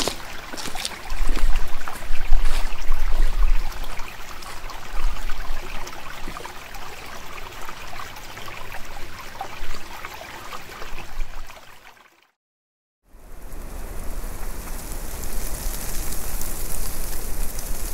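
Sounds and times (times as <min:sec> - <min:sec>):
footsteps crunching dry leaves: 0:00.0 - 0:03.4.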